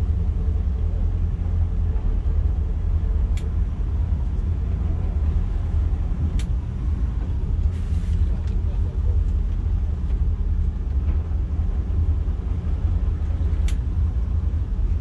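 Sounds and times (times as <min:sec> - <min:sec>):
boat engines rumbling: 0:00.0 - 0:15.0.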